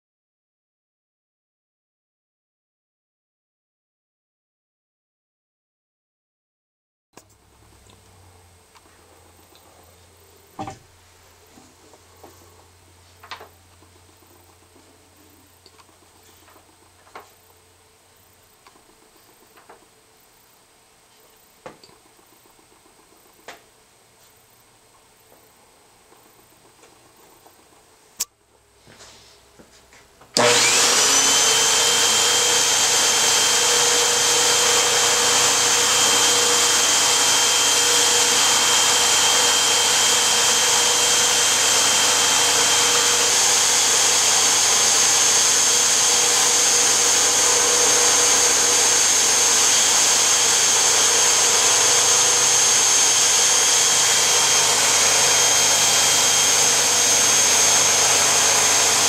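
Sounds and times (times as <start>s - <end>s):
vacuum cleaner running: 7.4s - 17.4s, 30.3s - 59.0s.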